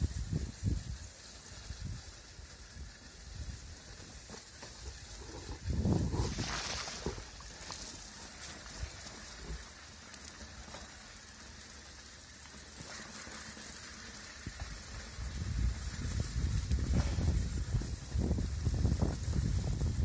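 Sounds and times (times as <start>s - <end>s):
wind buffeting microphone: 0.0s - 2.2s, 4.9s - 7.4s, 14.4s - 20.0s
tyres rolling on wet dirt: 0.2s - 20.0s.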